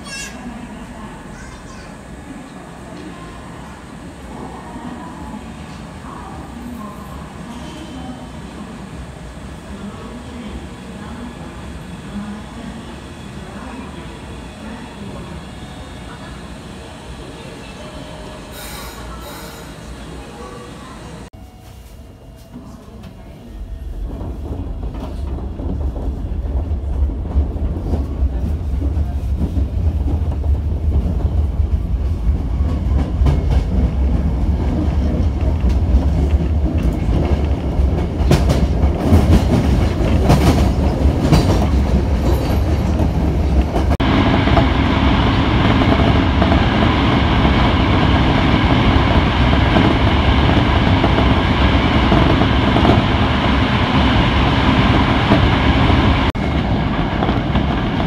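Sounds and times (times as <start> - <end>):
train wheels rumbling on rails: 22.4 - 58.0.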